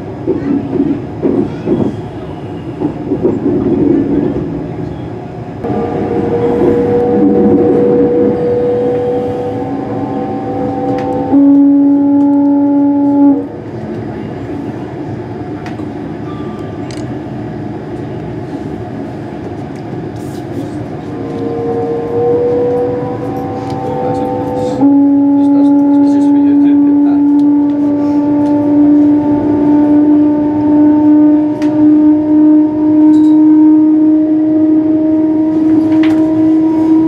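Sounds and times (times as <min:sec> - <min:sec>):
rolling rumble of train: 0:00.0 - 0:37.0
train traction motor whine: 0:04.9 - 0:37.0
train horn: 0:05.6 - 0:13.7, 0:21.0 - 0:37.0.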